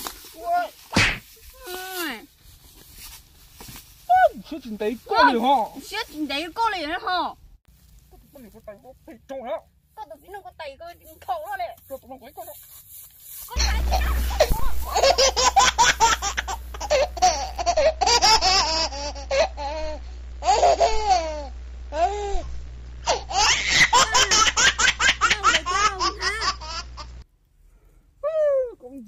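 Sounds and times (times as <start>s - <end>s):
steady low hum: 0.0s - 28.2s
high-pitched laughter: 13.6s - 21.5s, 23.1s - 27.1s.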